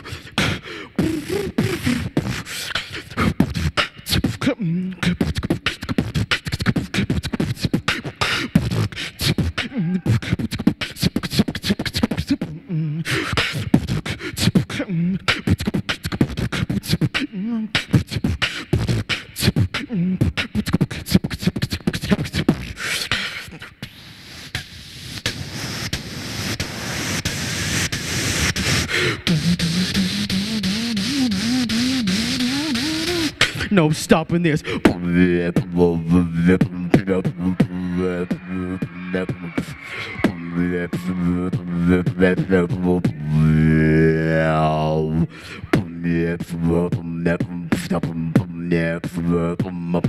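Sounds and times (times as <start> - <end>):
person beatboxing: 0.0 - 50.0
steady hiss: 23.9 - 34.2.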